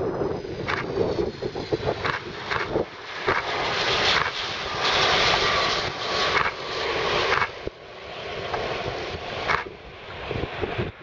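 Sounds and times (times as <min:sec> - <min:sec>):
jet airliner landing rush: 0:00.0 - 0:11.0.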